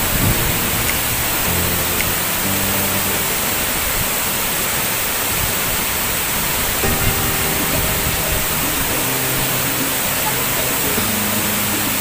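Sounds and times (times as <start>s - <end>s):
soft background music: 0.0s - 4.2s, 6.8s - 12.0s
waterfall rushing: 0.0s - 12.0s.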